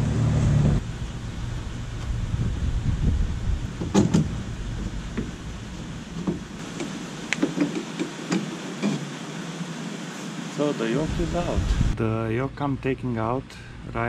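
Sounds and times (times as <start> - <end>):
low background rumble: 0.0 - 7.4.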